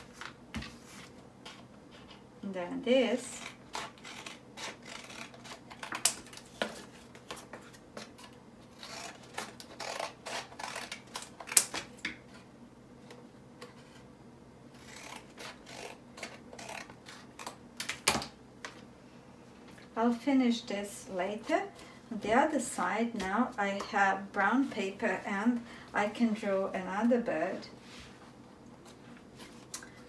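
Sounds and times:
scissors snipping paper: 3.3 - 6.5.

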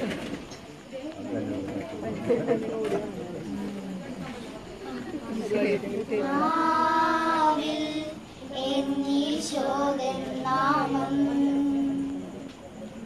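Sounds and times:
high voices singing slowly: 6.1 - 12.5.

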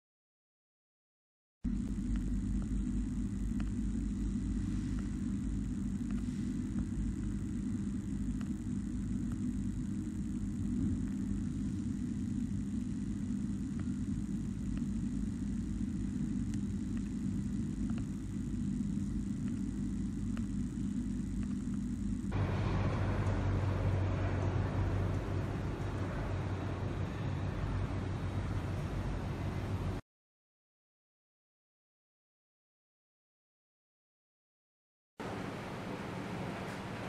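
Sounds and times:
constant low hum: 1.7 - 30.0
low rumble: 1.7 - 30.0.

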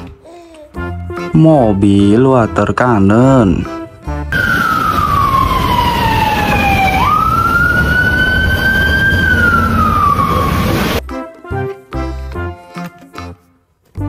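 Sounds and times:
fire truck siren wailing: 4.3 - 11.0.

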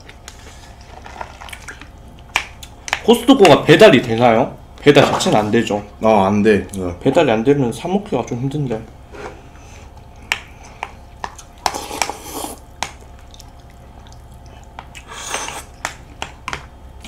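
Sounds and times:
slurping soup: 11.6 - 12.6.

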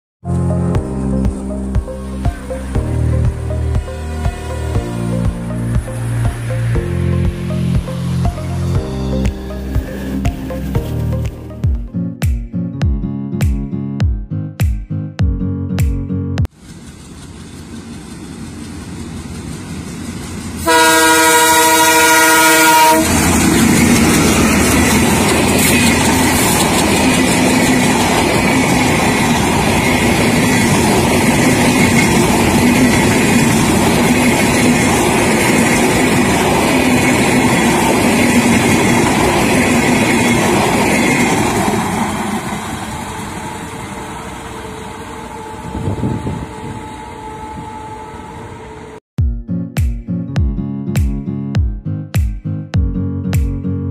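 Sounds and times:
diesel train rumbling past: 0.2 - 11.8, 16.4 - 49.0
locomotive horn blast: 20.6 - 23.6, 42.1 - 49.0.

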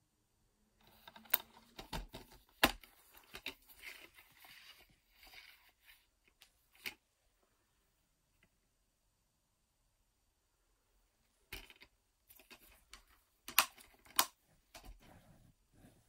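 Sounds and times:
soft rustling and scraping: 0.8 - 7.7, 11.5 - 16.0
plastic case clicking: 11.6 - 15.0.

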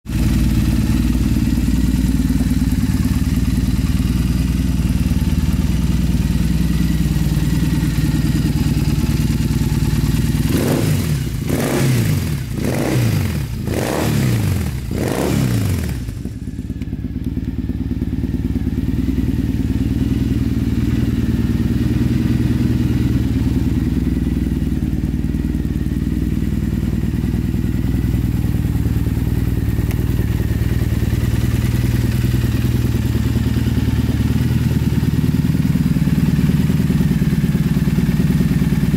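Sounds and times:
motorcycle engine idling: 0.1 - 38.9.

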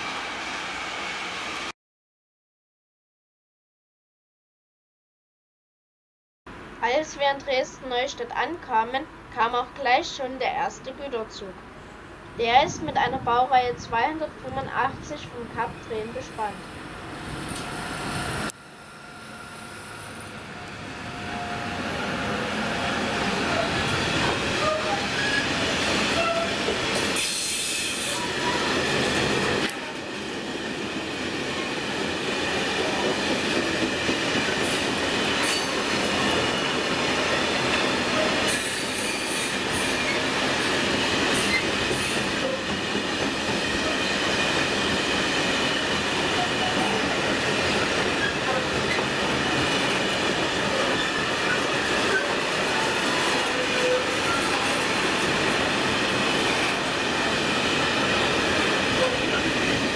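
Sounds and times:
freight train passing: 0.0 - 1.7, 6.5 - 59.9
wheel rumble and rail clatter: 16.6 - 59.9
high wheel squeals: 53.3 - 54.6.

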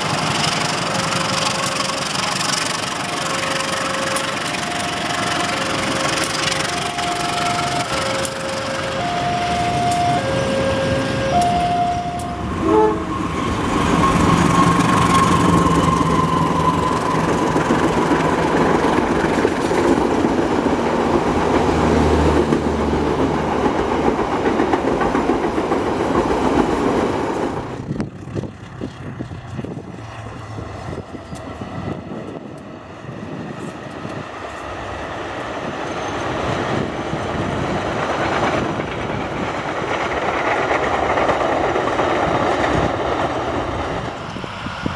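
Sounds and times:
wheels clattering on rail joints: 0.0 - 32.7, 33.5 - 44.9
diesel locomotive engine: 0.0 - 44.9
distant train: 0.0 - 44.9
train horn: 2.8 - 13.4.

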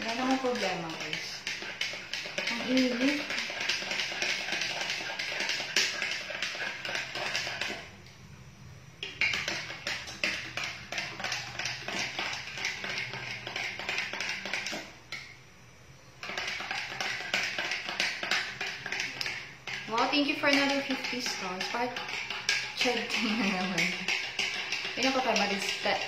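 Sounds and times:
hands tapping and clicking on counter: 9.0 - 15.3, 16.2 - 26.0.

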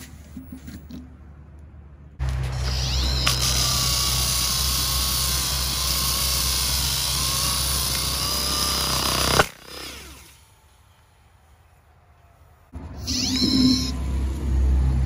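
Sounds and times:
electric motor whine: 2.2 - 10.3.

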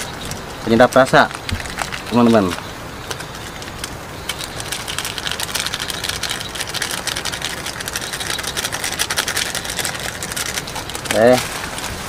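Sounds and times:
plastic sachet crinkling: 0.8 - 12.0.

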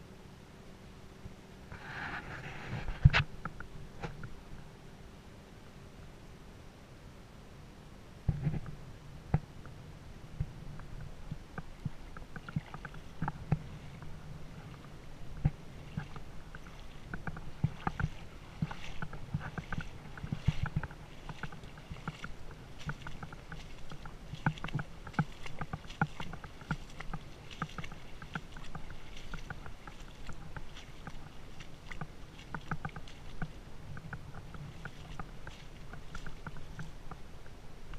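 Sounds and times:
splashing in shallow water: 8.3 - 37.9.

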